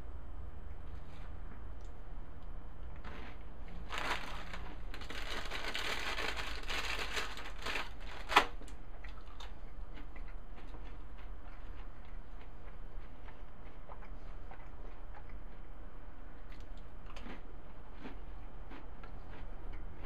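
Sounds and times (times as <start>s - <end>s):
hands crumpling something dry: 3.8s - 8.5s.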